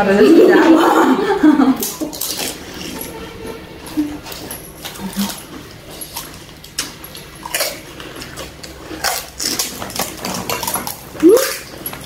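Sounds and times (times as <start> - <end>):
crisp shells cracking: 1.8 - 3.0, 4.4 - 12.0
chewing and slurping: 1.8 - 12.0.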